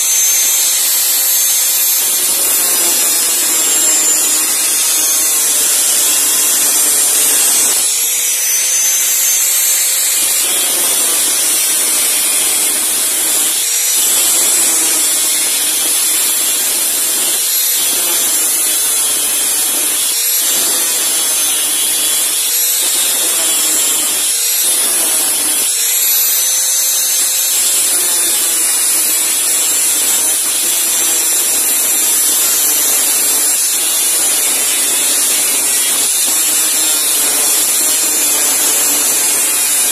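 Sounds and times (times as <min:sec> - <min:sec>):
angle grinder cutting steel: 0:00.0 - 0:39.9.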